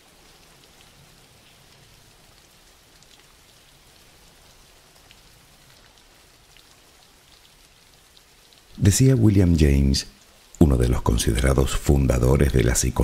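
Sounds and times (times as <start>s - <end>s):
faint steady rain: 0.0s - 13.0s
raindrop ticks: 0.3s - 13.0s.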